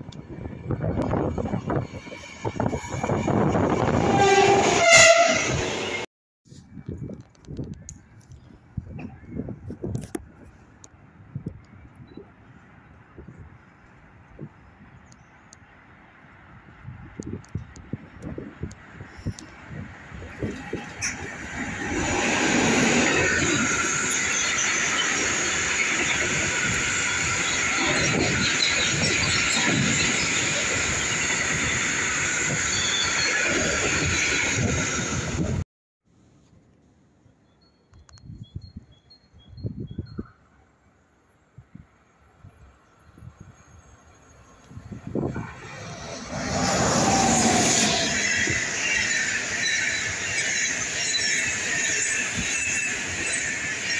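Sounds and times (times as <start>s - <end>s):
train wheels rumbling on rail: 0.0s - 6.0s, 16.9s - 35.6s, 44.7s - 53.9s
high steady screech: 20.6s - 35.4s, 45.3s - 53.9s
high squealing tones: 45.1s - 53.9s.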